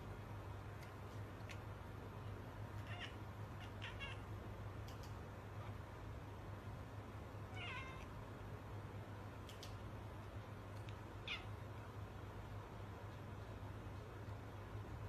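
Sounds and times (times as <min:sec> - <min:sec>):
cat meowing: 0:02.8 - 0:04.3, 0:07.5 - 0:08.1, 0:11.2 - 0:11.6
faint ticks: 0:04.8 - 0:05.2.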